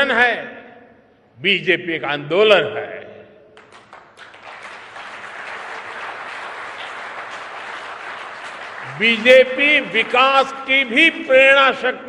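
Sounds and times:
crowd applause: 0:03.6 - 0:10.6.

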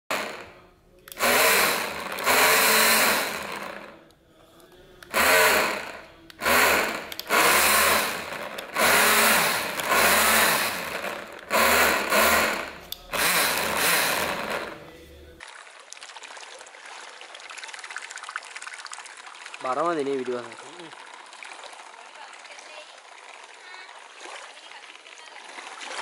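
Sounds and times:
cordless drill motor bursts: 0:00.1 - 0:04.0, 0:05.1 - 0:14.8.

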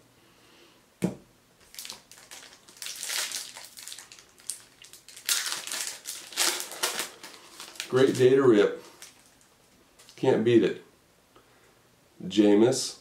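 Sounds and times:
single thump: 0:01.0 - 0:01.2
foil wrapper crinkling and tearing: 0:01.6 - 0:10.2.

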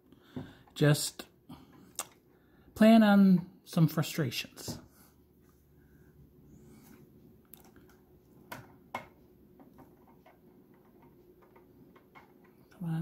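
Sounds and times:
plastic parts clicking and tapping: 0:07.6 - 0:12.8.

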